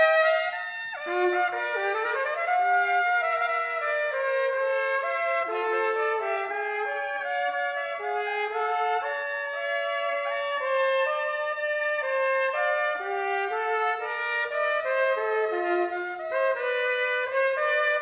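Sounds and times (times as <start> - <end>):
cornet duet in harmony: 0.0 - 18.0.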